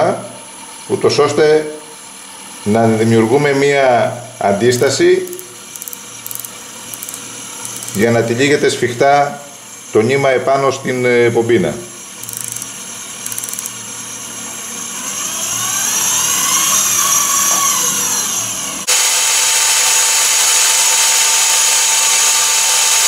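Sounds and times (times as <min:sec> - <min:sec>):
electric fishing reel motor whining: 0:04.5 - 0:08.3, 0:12.1 - 0:18.7.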